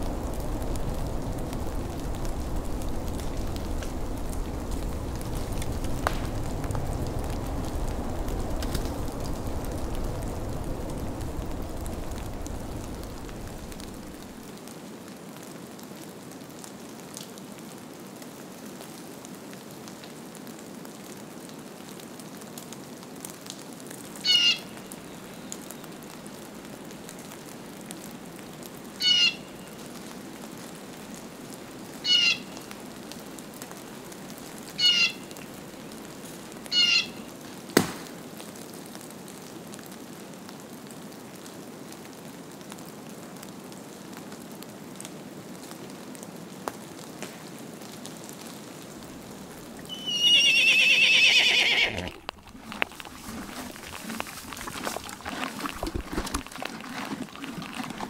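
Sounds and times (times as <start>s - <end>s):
background hiss: 0.0s - 40.8s, 44.7s - 56.4s
bird calls: 24.2s - 25.9s, 29.0s - 29.7s, 32.0s - 32.6s, 34.8s - 35.3s, 36.7s - 37.3s, 49.8s - 52.1s
horse whinnying: 49.8s - 58.0s.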